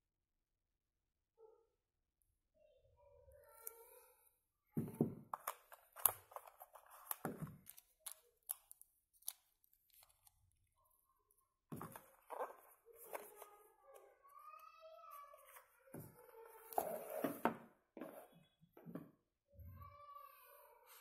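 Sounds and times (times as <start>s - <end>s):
cardboard rustling: 11.7s - 14.0s.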